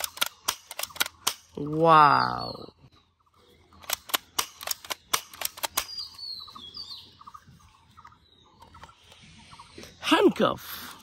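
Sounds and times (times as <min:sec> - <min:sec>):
toy rifle clicking: 0:00.0 - 0:01.6, 0:03.8 - 0:05.9.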